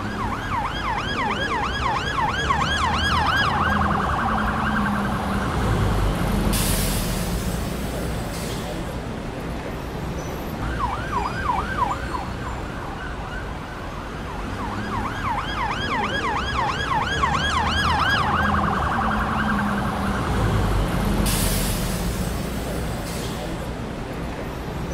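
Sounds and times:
electronic siren yelping: 0.0 - 5.5, 14.6 - 20.3
low road rumble: 0.0 - 24.9.

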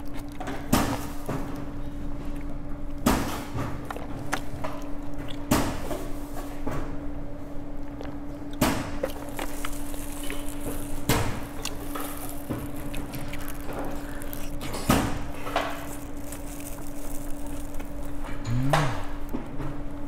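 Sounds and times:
steady low hum: 0.0 - 20.0
sipping through a plastic straw: 9.2 - 19.2.

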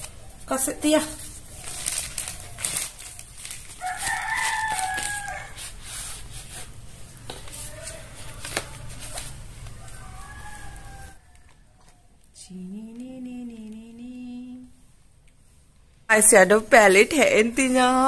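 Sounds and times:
bubble wrap handled: 0.0 - 12.0
cardboard box rustling: 1.6 - 6.8.

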